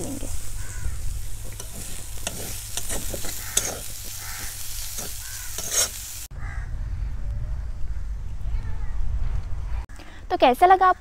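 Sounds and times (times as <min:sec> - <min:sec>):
frying sizzle: 0:00.0 - 0:06.3
metal spatula scraping pan: 0:01.4 - 0:06.1
low rumble: 0:06.4 - 0:09.9.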